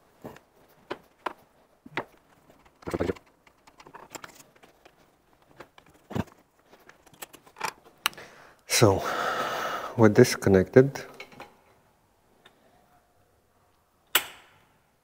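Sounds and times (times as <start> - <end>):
rustle and clatter of wiring: 0.2 - 8.1.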